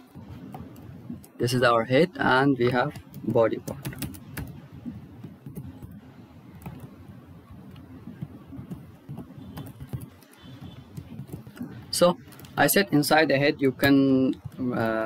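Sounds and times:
computer keyboard keys clicking: 2.6 - 7.0, 7.6 - 12.7.

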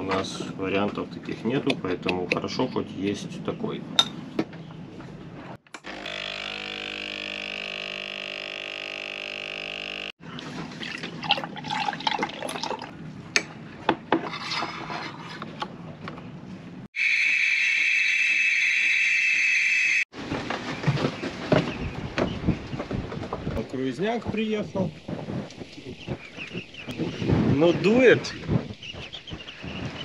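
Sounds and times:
espresso pump humming: 5.8 - 10.1
milk pouring into a mug: 10.8 - 12.9.

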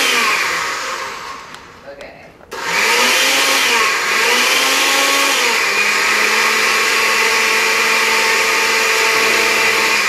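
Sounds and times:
blender motor running: 0.0 - 1.6, 2.6 - 10.0.

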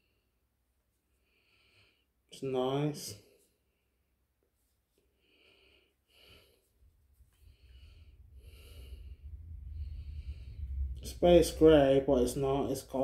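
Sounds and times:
person breathing quietly: 1.1 - 2.2, 4.9 - 11.3
low rumble: 6.7 - 13.0.

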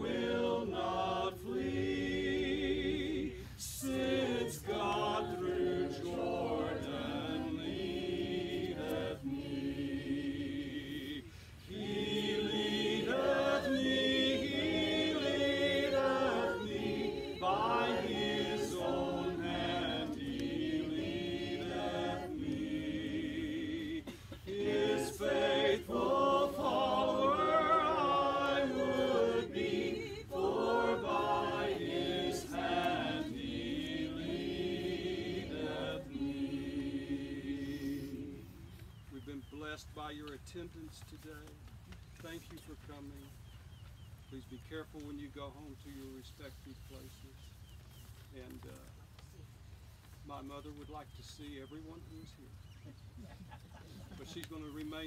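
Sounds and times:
group singing a hymn: 0.0 - 41.5, 53.5 - 55.0.

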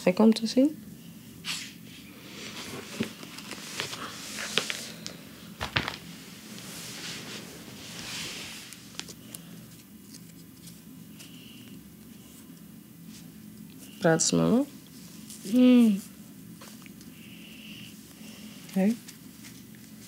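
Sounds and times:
low room hum: 0.0 - 20.0
clothing rustling: 2.3 - 10.7
paper photo being handled: 2.5 - 6.2, 8.6 - 11.3.

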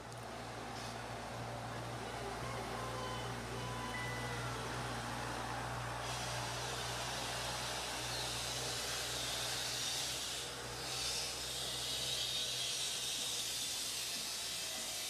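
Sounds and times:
outdoor hiss: 4.6 - 15.0.

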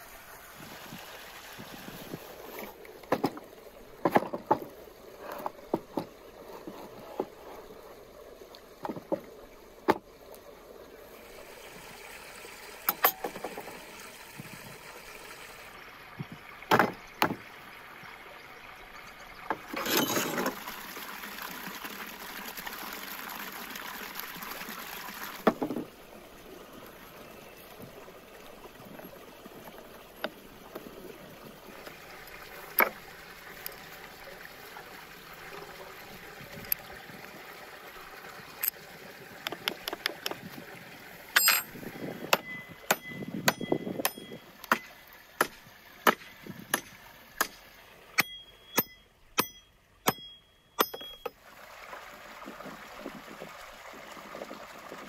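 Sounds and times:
water rushing from a tap: 19.6 - 25.6
utensils and dishes clinking: 41.4 - 41.7.

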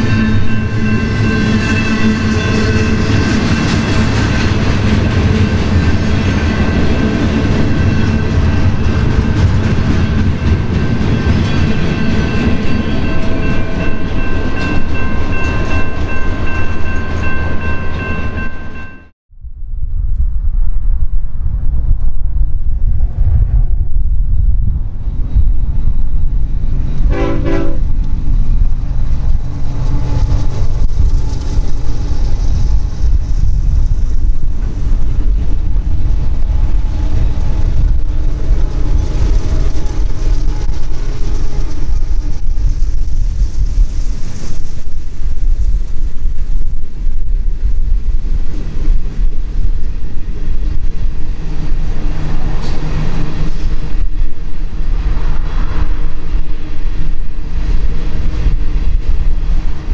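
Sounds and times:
freight train rumbling past: 0.0 - 19.1, 22.6 - 59.9
locomotive horn blast: 27.1 - 27.9.

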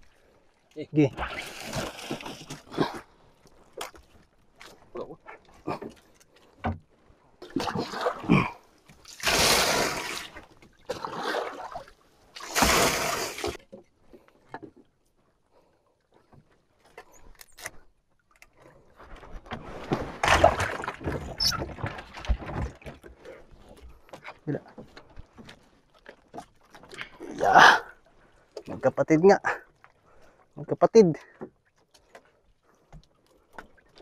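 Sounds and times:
rustling and scraping: 19.0 - 20.4.

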